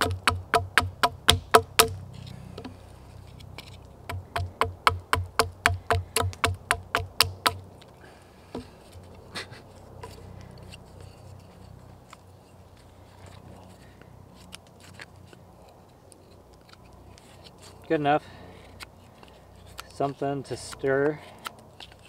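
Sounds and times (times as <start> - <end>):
hatchet chopping wood: 0.0 - 2.0, 4.0 - 7.6
hatchet tapping wood: 0.0 - 2.0, 4.1 - 7.6.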